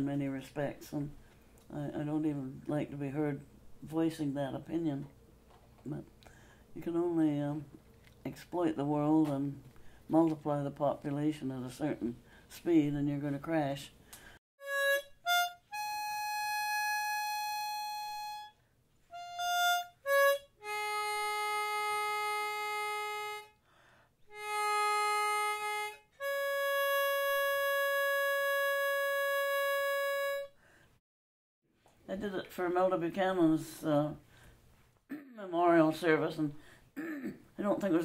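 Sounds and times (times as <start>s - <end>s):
harmonica playing: 14.6s - 23.6s, 24.3s - 30.6s.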